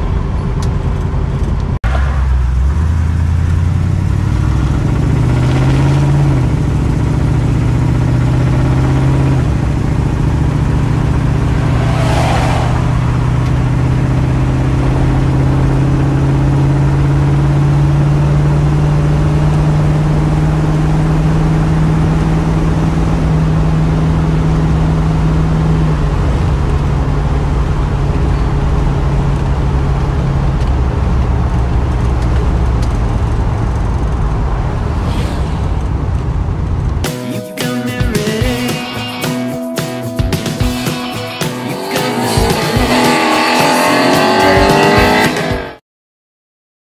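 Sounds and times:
car engine at road speed: 0.0 - 37.1, 40.1 - 45.8
brief rushing sound: 11.0 - 14.1, 34.4 - 37.1.

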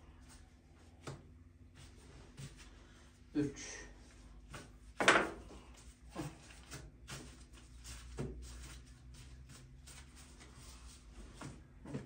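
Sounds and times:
hands rubbing dough: 5.6 - 11.9.

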